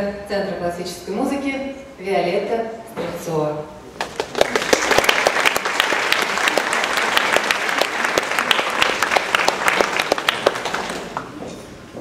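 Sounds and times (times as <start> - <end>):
audience applauding: 4.0 - 11.4.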